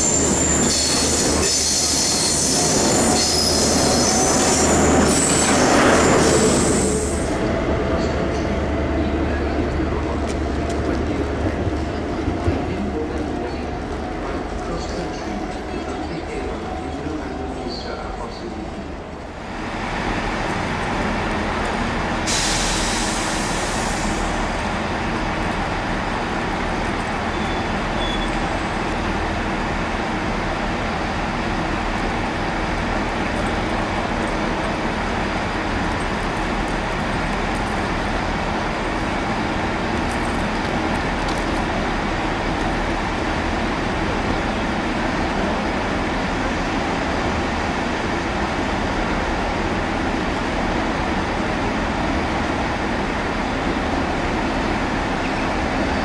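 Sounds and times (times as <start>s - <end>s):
hissing air burst: 22.2s - 24.4s.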